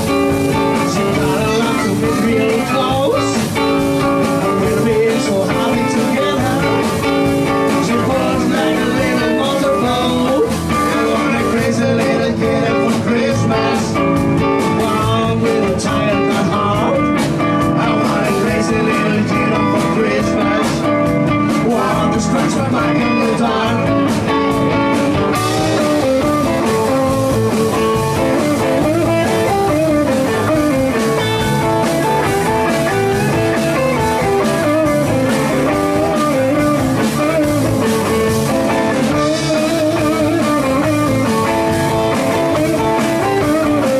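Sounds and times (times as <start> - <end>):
live blues rock band: 0.0 - 43.9.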